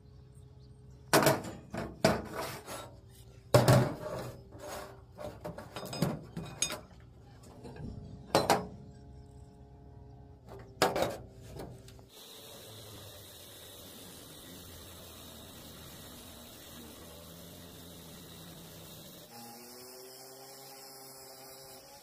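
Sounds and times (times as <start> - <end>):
metal workpieces knocking: 5.2 - 8.8
steady hiss: 11.9 - 21.8.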